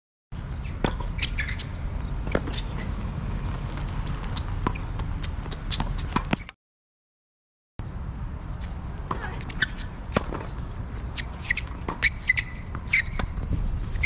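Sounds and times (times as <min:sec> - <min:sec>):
short high squeaks: 0:00.6 - 0:01.8, 0:04.3 - 0:06.6, 0:09.5 - 0:09.9, 0:10.9 - 0:13.3
ball bouncing on hard court: 0:00.8 - 0:02.8, 0:04.1 - 0:06.5, 0:11.2 - 0:14.0
racket striking tennis ball: 0:09.0 - 0:13.4.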